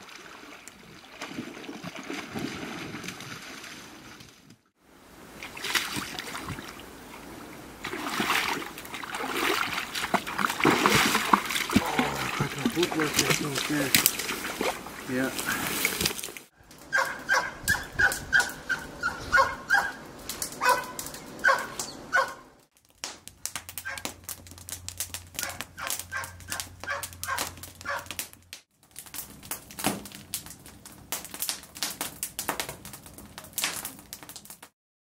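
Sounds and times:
wood fire crackling: 4.9 - 34.7
dog whining and yipping: 16.9 - 20.0, 20.6 - 22.4.

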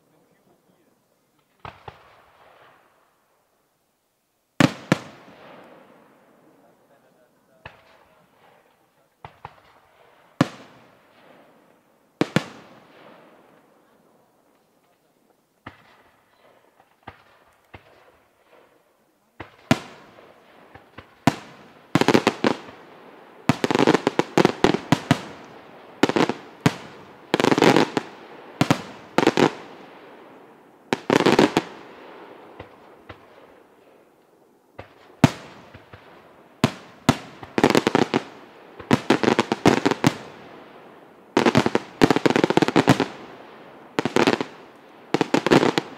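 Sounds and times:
small firework pops: 1.3 - 2.8, 7.6 - 9.8, 14.5 - 18.8, 19.4 - 20.0, 20.6 - 22.8, 32.6 - 33.4, 34.2 - 40.2
firework bangs with echo: 17.0 - 30.2, 41.4 - 43.2.

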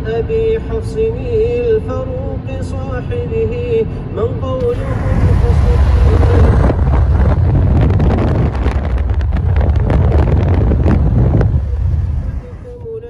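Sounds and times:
road noise: 0.0 - 13.0
wind buffeting microphone: 4.6 - 13.0.

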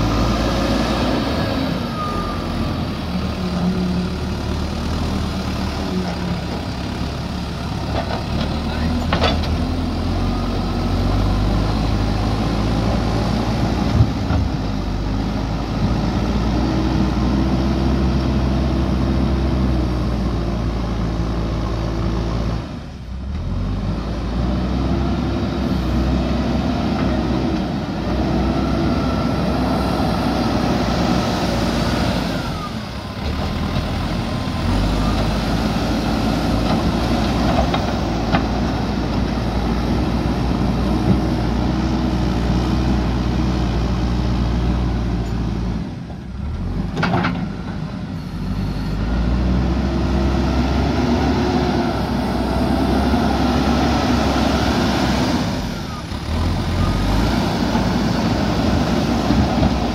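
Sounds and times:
diesel engine running under load: 0.0 - 59.9.

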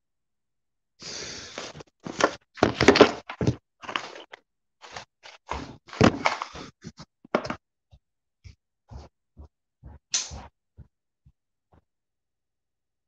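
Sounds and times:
scrape: 1.0 - 2.3, 4.8 - 7.1.

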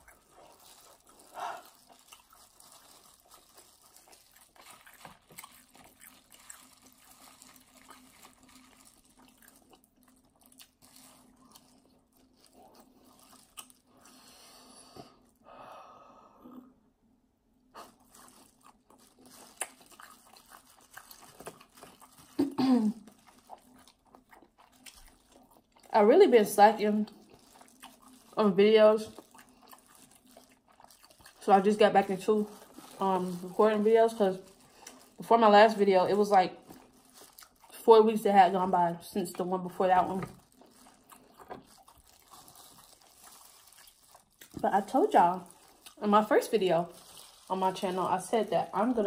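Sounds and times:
food crunching: 0.0 - 14.2, 17.8 - 49.0
faint steady hum: 0.0 - 49.0
chewing with wet mouth clicks: 3.3 - 13.8, 18.6 - 22.4, 23.1 - 25.9, 27.1 - 28.2, 29.1 - 31.4, 40.2 - 44.6.

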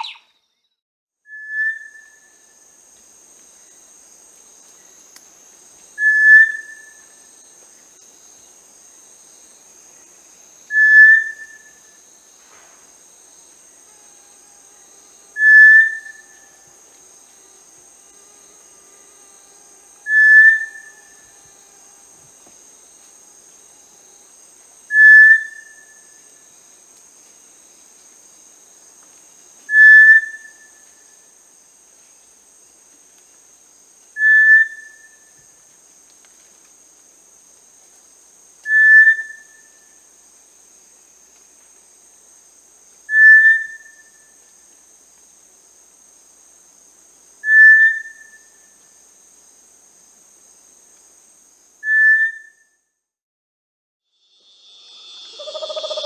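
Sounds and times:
whistled call: 0.0 - 0.3, 1.3 - 2.4, 6.0 - 7.0, 10.7 - 11.8, 15.4 - 16.3, 20.1 - 20.9, 24.9 - 25.8, 29.7 - 30.7, 34.2 - 35.2, 38.7 - 39.8, 43.1 - 44.2, 47.4 - 48.5, 51.8 - 52.8
high-pitched insect chorus: 0.0 - 0.7, 1.3 - 52.8, 54.1 - 56.0.

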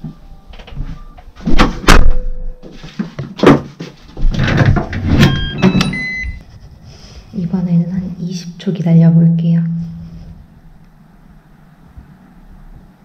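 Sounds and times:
electronic lock beeps: 5.2 - 6.4.

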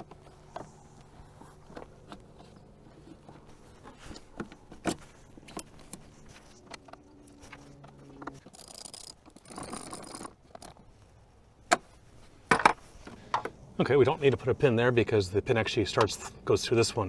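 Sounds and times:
plastic pieces clicking and rattling: 8.3 - 10.8.

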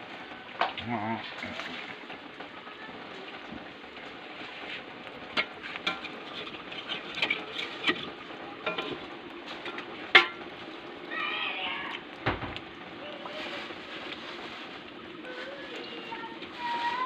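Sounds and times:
hot oil sizzling in a wok: 0.0 - 17.0
ladle knocking against wok: 9.6 - 10.4.

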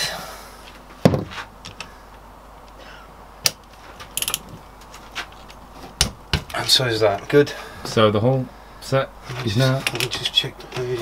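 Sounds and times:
torque wrench clicks: 4.2 - 4.4
ratchet clicks: 4.2 - 4.5.

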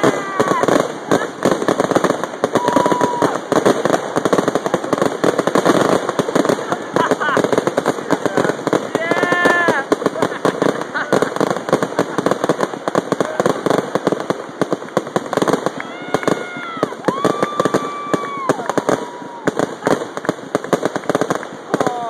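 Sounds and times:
spectators whooping: 0.0 - 1.3, 2.5 - 3.6, 15.6 - 20.3, 21.7 - 22.0
fireworks crackling and popping: 0.0 - 22.0.

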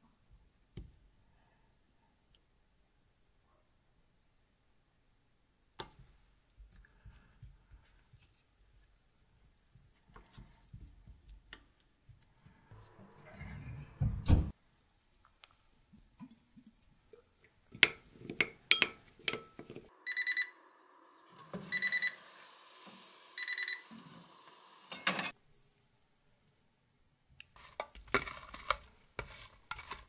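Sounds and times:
spoon clinking glass bowl: 18.4 - 19.7.

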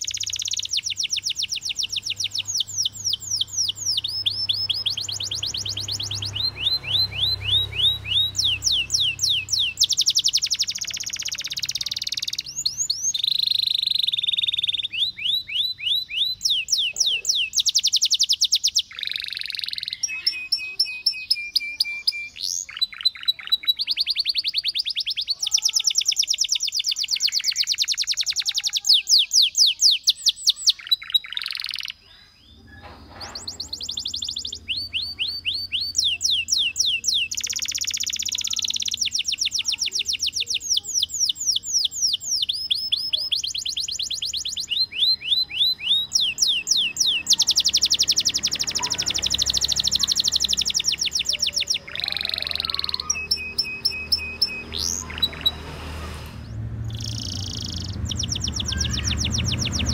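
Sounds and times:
canary singing trills: 0.0 - 59.9.

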